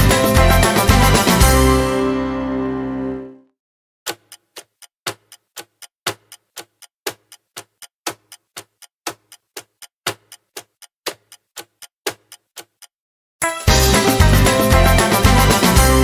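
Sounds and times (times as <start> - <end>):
countdown timer ticking: 4.1 - 16.0.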